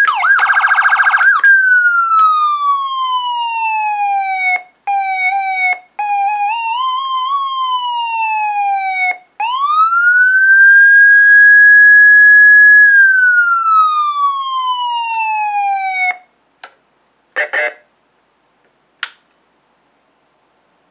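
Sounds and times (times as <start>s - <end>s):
electronic siren rising and falling: 0.0s - 16.2s
clicks of controls: 19.0s - 19.3s.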